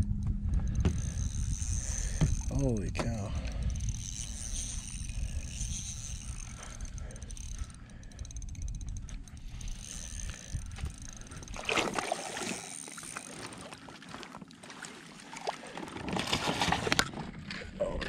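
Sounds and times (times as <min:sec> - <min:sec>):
water splashing and sloshing: 0:09.0 - 0:17.7.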